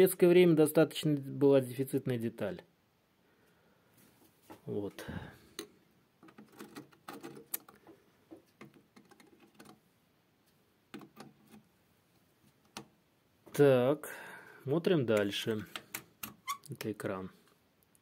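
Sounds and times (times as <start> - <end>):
handling clicks and rustles: 5.5 - 9.9.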